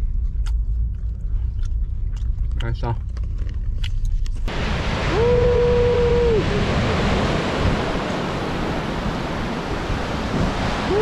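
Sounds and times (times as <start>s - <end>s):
wind rumbling on microphone: 3.0s - 11.0s
waves breaking on rocky shore: 4.5s - 11.0s.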